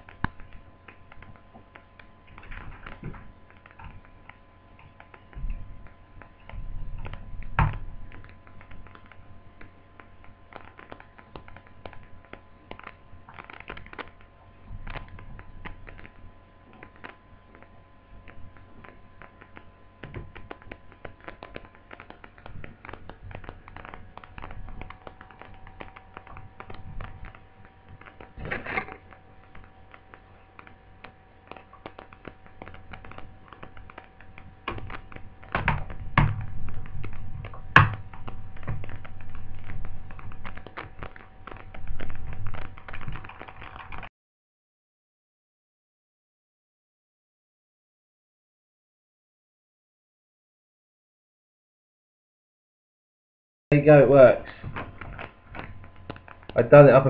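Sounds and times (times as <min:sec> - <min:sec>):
faint steady whine: 0:00.0 - 0:44.1, 0:53.7 - 0:57.0
plastic laptop case clicks and knocks: 0:20.0 - 0:44.1.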